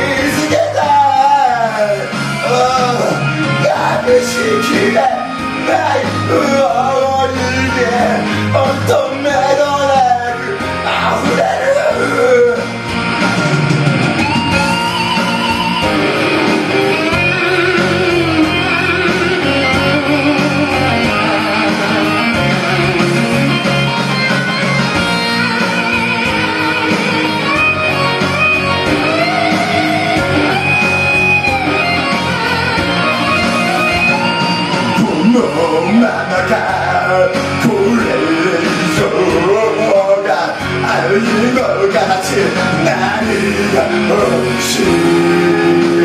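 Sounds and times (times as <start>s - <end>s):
instrumental band music: 0.0s - 46.0s.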